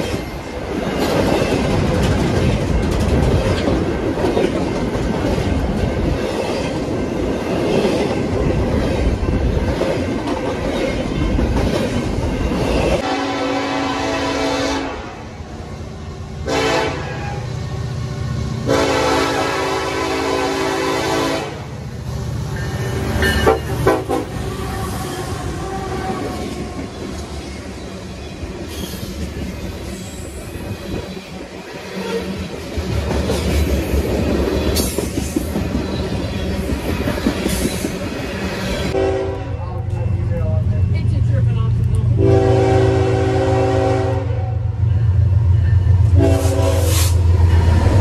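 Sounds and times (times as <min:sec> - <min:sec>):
train wheels clattering: 0:00.0 - 0:13.0, 0:26.1 - 0:39.0
train air horn blasts: 0:13.0 - 0:15.3, 0:16.4 - 0:17.5, 0:18.6 - 0:21.7, 0:23.2 - 0:26.3, 0:38.9 - 0:39.6, 0:42.2 - 0:44.6, 0:46.1 - 0:47.2.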